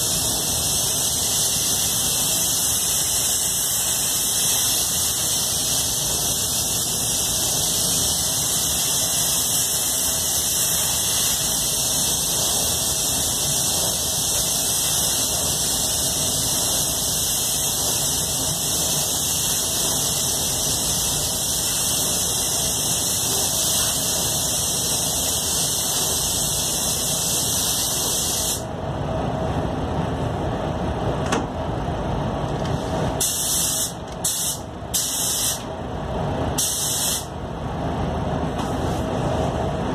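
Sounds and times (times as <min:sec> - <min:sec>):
spray gun hissing: 0:00.0 - 0:28.6, 0:33.2 - 0:35.6, 0:36.6 - 0:37.3.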